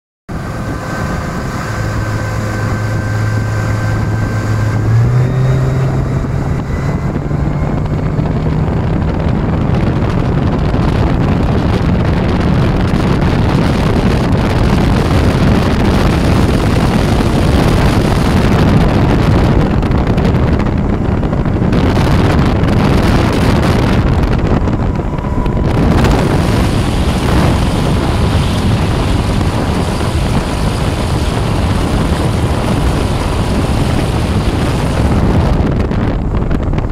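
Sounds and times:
water rushing: 0:00.3 - 0:10.4, 0:21.8 - 0:35.4
outboard motor running hard: 0:00.3 - 0:36.9
wind on microphone: 0:00.3 - 0:36.9.

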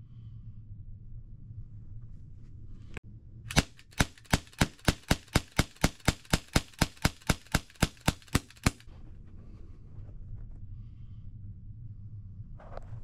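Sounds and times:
air pistol sharp cracks: 0:03.5 - 0:08.9.

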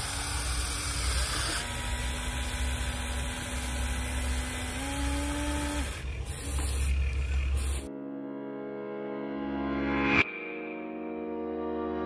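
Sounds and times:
electric motors whining: 0:00.0 - 0:07.9.

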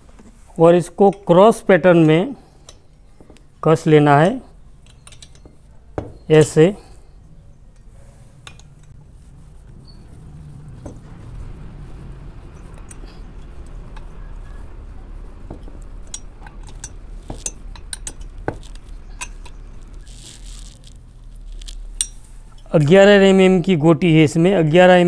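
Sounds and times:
spanner clinking on bolts: 0:04.8 - 0:06.7, 0:15.5 - 0:19.6.

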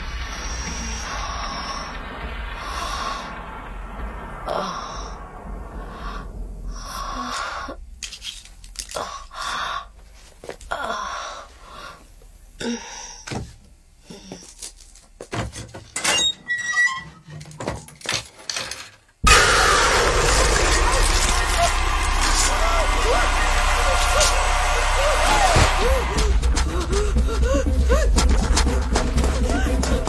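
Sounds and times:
woman breathing heavily and gasping: 0:25.8 - 0:30.0.

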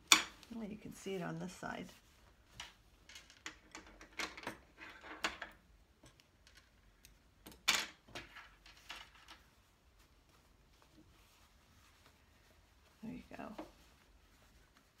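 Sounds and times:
fabric rustling: 0:00.0 - 0:03.2, 0:08.0 - 0:15.0.

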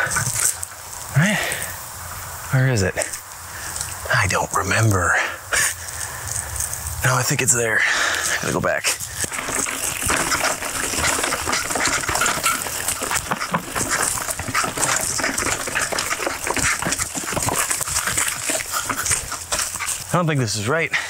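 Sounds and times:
bike tyres crackling through leaves: 0:00.0 - 0:21.0
bike rattling over bumps: 0:08.2 - 0:20.7.

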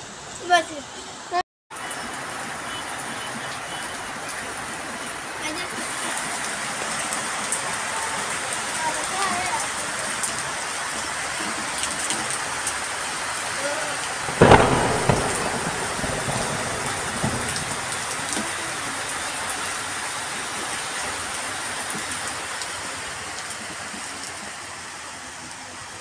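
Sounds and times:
heavy rain falling: 0:00.0 - 0:26.0
loud sudden noise: 0:14.3 - 0:18.3.

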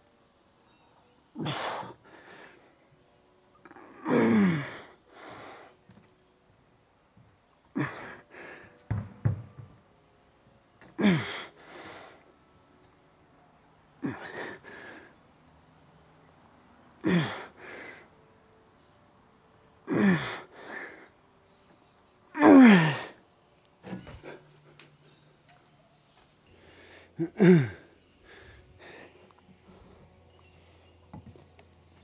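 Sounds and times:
man breathing hard: 0:11.0 - 0:12.3, 0:26.5 - 0:31.1
man groaning: 0:22.3 - 0:23.2.

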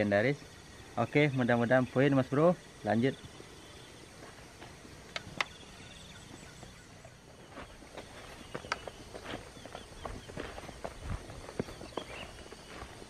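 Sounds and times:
footsteps on grass: 0:04.1 - 0:05.0, 0:06.1 - 0:13.0
sharp clicks: 0:05.1 - 0:05.6.

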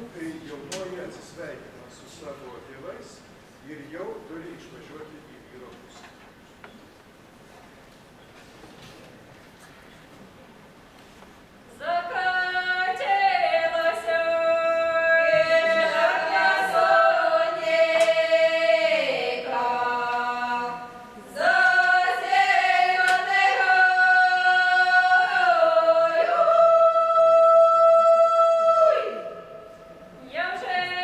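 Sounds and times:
women singing unaccompanied: 0:11.7 - 0:29.6, 0:30.2 - 0:31.0.

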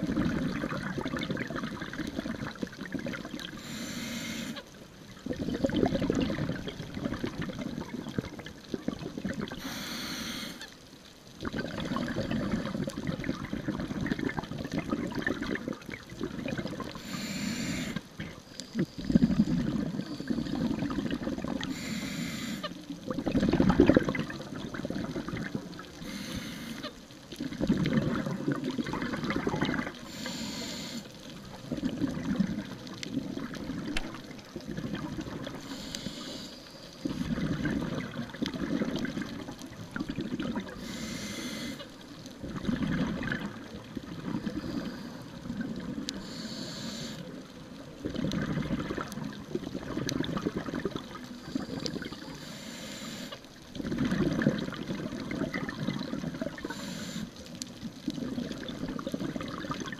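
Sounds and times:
exhaled bubbles gurgling: 0:00.0 - 0:59.9
regulator inhalation hiss: 0:03.6 - 0:04.6, 0:09.6 - 0:10.7, 0:17.0 - 0:18.0, 0:21.6 - 0:22.7, 0:26.0 - 0:26.9, 0:30.0 - 0:31.2, 0:35.6 - 0:37.0, 0:40.8 - 0:41.9, 0:46.2 - 0:47.3, 0:51.6 - 0:53.4, 0:56.6 - 0:57.4.

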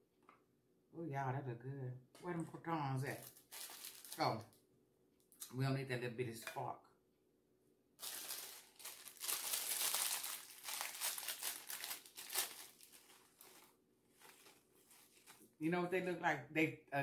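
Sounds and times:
plastic packet crinkling: 0:03.1 - 0:04.6, 0:08.0 - 0:15.5.

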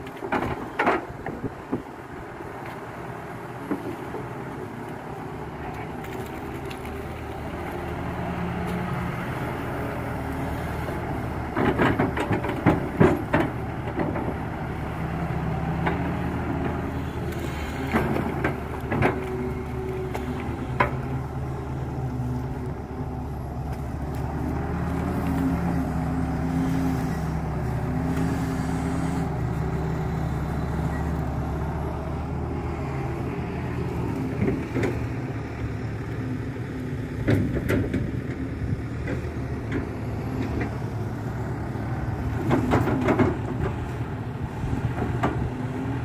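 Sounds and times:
excavator diesel engine running: 0:00.0 - 0:46.0
knocks and clanks: 0:11.5 - 0:14.4, 0:17.9 - 0:19.4, 0:42.4 - 0:43.8.

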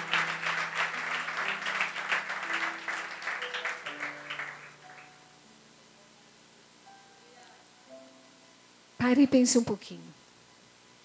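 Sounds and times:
congregation applauding: 0:00.0 - 0:05.2
soft keyboard chords: 0:00.0 - 0:09.2.

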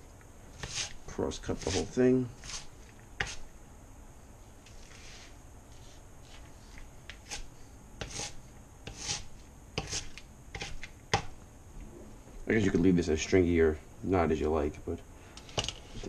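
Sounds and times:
knife cutting cabbage on board: 0:00.6 - 0:03.4, 0:07.1 - 0:11.3.

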